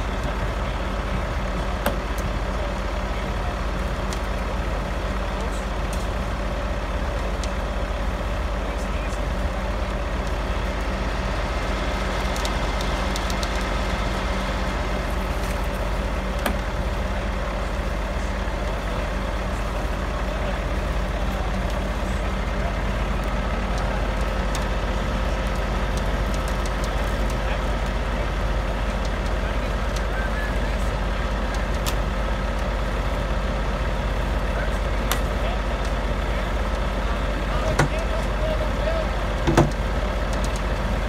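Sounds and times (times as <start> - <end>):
diesel truck engine running: 0.0 - 41.0.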